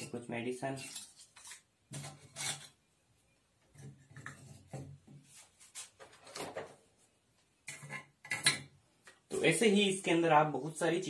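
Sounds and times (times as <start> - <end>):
light rubbing and scraping: 0.0 - 2.8.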